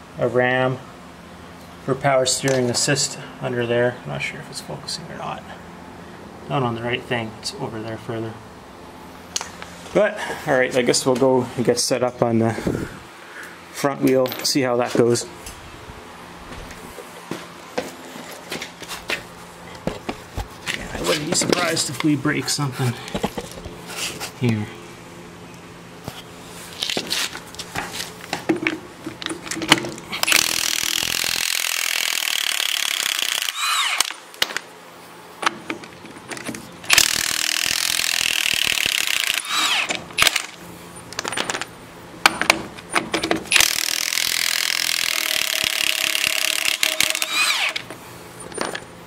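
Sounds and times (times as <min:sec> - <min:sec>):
impact wrench hammering: 0:36.9 - 0:40.6, 0:43.2 - 0:47.9.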